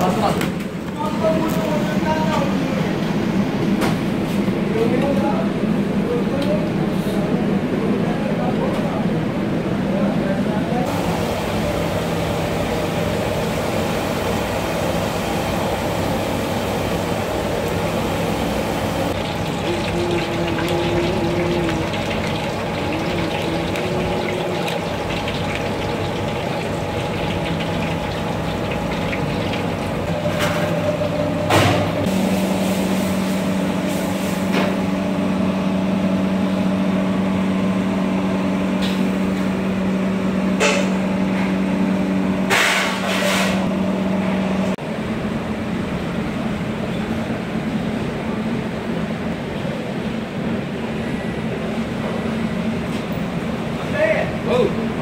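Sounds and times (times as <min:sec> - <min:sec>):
steady machine hum: 0:09.1 - 0:42.6
oil sizzling and bubbling: 0:10.9 - 0:35.4.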